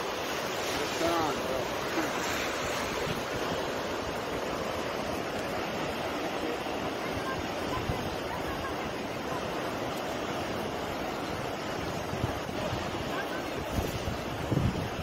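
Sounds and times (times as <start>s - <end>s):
sea surf: 0.0s - 15.0s
wind buffeting microphone: 10.4s - 15.0s.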